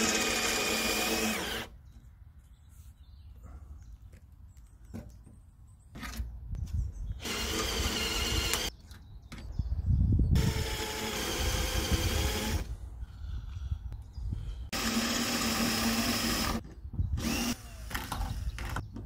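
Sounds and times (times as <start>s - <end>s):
cordless drill whining: 0.0s - 1.7s, 7.2s - 8.7s, 10.4s - 12.7s, 14.7s - 16.6s, 17.2s - 18.9s.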